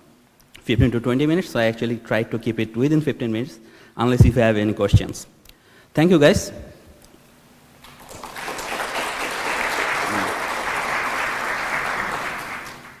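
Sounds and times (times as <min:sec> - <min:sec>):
audience applauding: 0:07.8 - 0:13.0.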